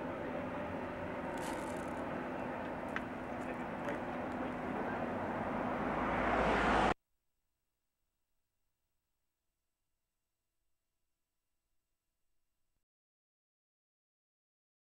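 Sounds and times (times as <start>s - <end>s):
car road and engine noise: 0.0s - 7.0s.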